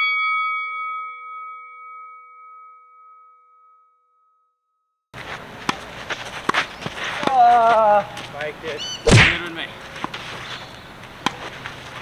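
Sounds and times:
bell-like chime: 0.0s - 4.5s
tennis racket hitting ball: 5.2s - 7.9s, 9.1s - 10.2s, 11.1s - 12.0s
outdoor court ambience: 5.2s - 12.0s.

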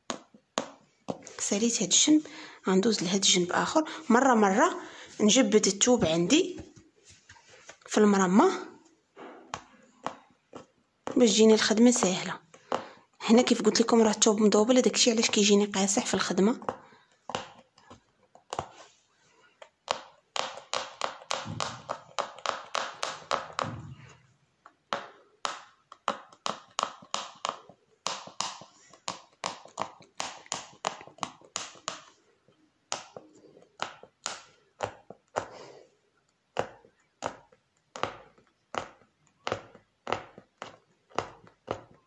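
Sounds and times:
needle punching through fabric: 19.6s - 24.2s, 32.9s - 42.0s.

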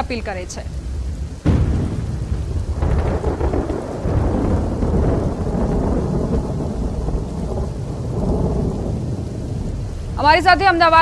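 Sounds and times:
steady heavy rain: 0.0s - 11.0s.

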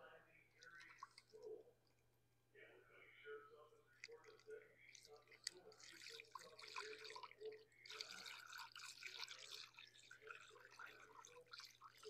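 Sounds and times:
liquid trickling through funnel: 0.6s - 1.6s, 4.0s - 12.0s.

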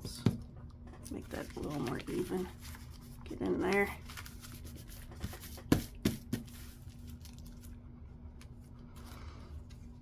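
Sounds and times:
paper rustling: 1.3s - 7.7s.

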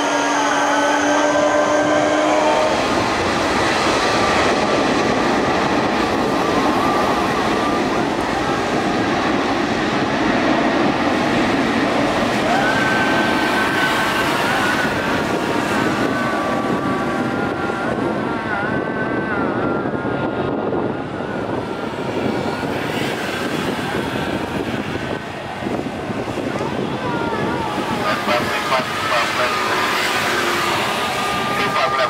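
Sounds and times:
jet engines roaring: 0.0s - 32.0s.

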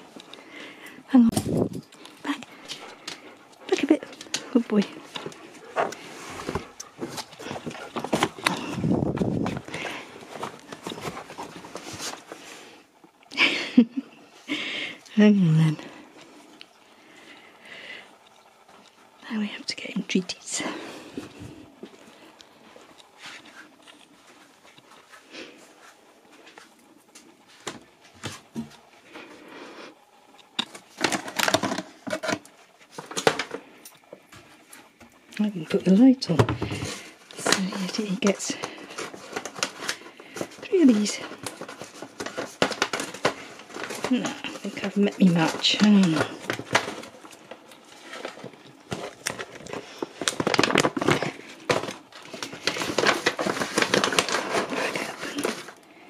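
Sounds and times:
plastic packet crinkling: 36.7s - 56.0s.

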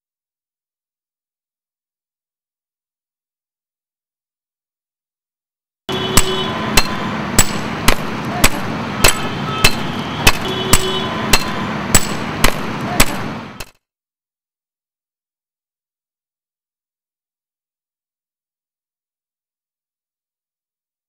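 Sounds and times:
hammer striking stone: 6.1s - 13.8s.

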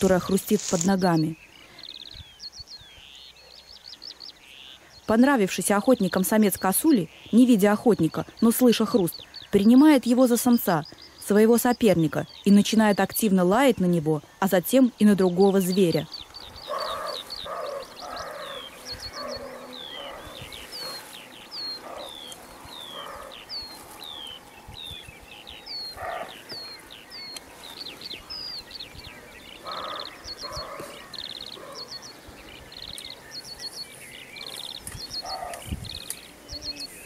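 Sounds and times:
deer barking: 16.7s - 21.1s, 22.9s - 23.4s, 25.9s - 26.4s, 29.7s - 31.9s.

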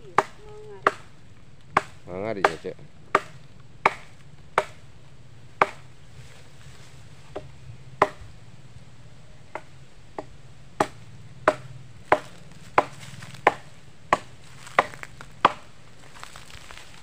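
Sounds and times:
blade chopping wood: 1.7s - 4.8s, 5.6s - 5.8s, 9.5s - 15.7s.

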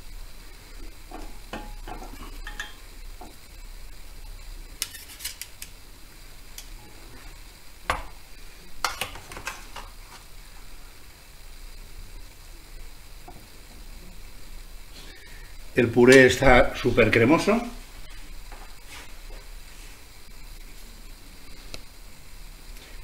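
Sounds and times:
knife scraping metal tray: 4.8s - 5.5s.

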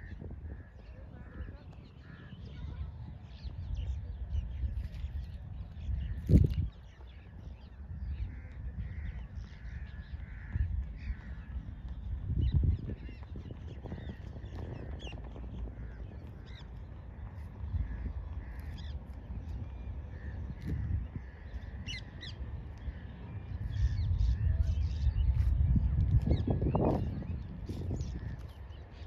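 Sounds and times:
wind rumble on microphone: 0.0s - 29.0s
crows cawing: 8.3s - 11.5s.

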